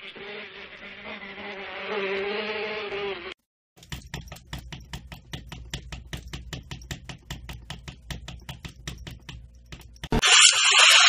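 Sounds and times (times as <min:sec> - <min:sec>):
cat claws tapping on glass: 0:03.8 - 0:10.1.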